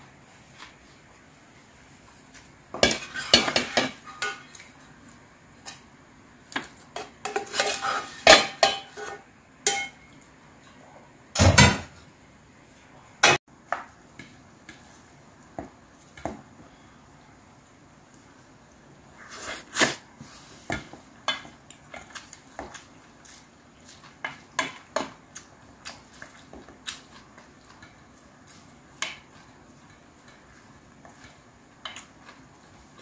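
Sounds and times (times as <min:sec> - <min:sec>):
spoon scraping a frying pan: 0:02.8 - 0:04.6, 0:06.9 - 0:10.1.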